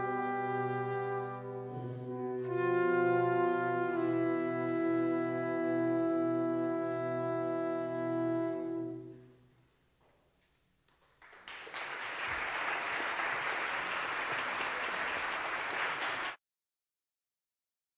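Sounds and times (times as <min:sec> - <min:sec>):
audience applause: 0:11.2 - 0:16.4.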